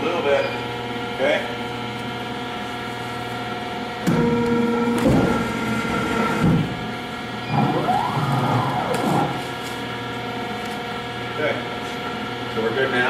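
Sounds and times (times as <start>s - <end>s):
press machine humming: 0.4s - 12.5s
motor whine rising and falling: 4.1s - 9.6s.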